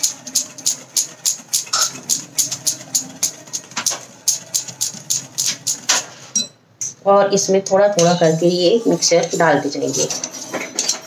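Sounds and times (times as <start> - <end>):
whisk clicking against glass bowl: 0.0 - 7.0.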